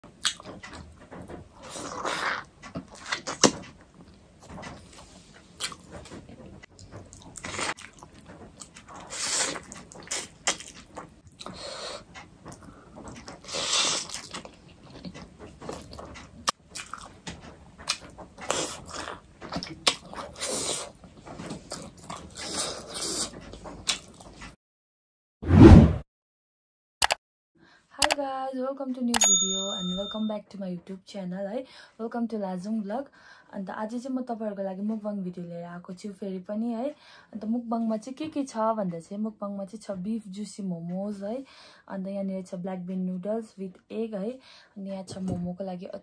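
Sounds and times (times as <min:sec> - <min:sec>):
wet chewing and slurping: 0:01.6 - 0:03.7, 0:06.8 - 0:24.5.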